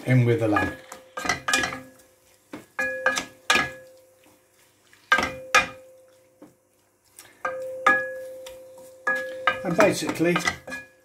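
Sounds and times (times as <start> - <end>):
wooden spoon knocking on pan: 0.4 - 3.9.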